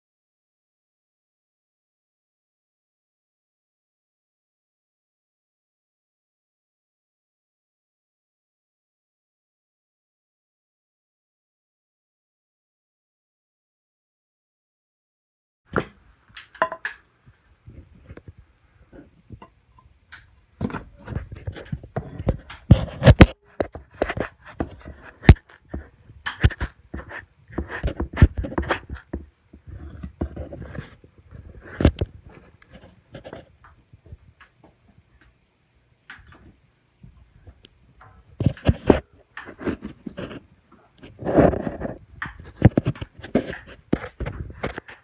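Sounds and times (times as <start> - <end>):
camera being jostled: 20.1 - 34.3.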